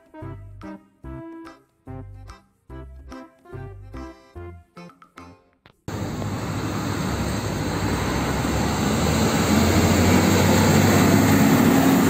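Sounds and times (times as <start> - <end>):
truck driving past: 5.9 - 12.0.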